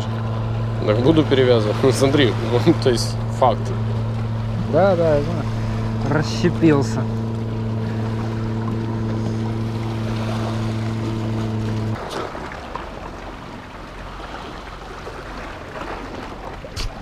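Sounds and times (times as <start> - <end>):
low motor drone: 0.0 - 17.0
waves washing against rocks: 7.8 - 17.0.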